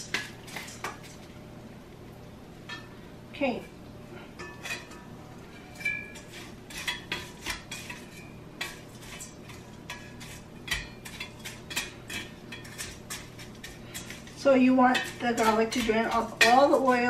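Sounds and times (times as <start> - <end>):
utensil scraping metal strainer: 4.4 - 17.0.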